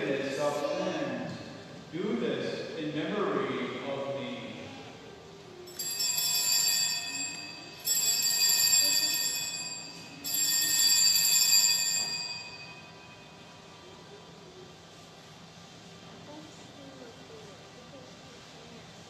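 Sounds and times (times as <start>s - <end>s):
high bright bells ringing: 5.7s - 13.6s.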